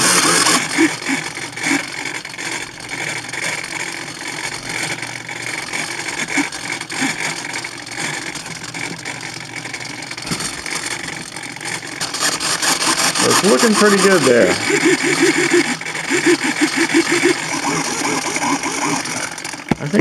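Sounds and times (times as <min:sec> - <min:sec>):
servos whirring: 0:00.0 - 0:20.0.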